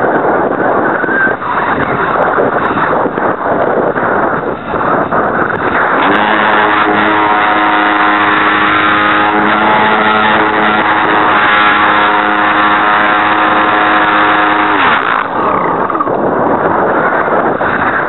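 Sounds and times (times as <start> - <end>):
model airplane motor whine: 6.0 - 15.4.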